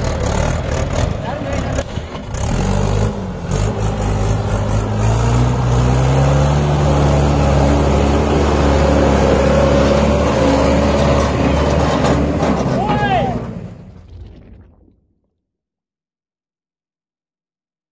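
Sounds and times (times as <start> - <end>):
tractor diesel engine revving: 0.0 - 14.1.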